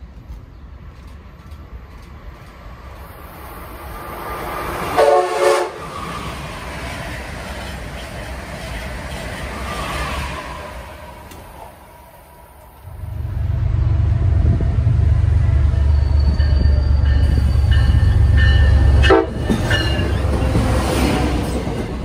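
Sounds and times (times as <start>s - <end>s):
train passing at speed: 0.0s - 22.0s
train horn blast: 4.9s - 5.9s, 18.7s - 19.7s.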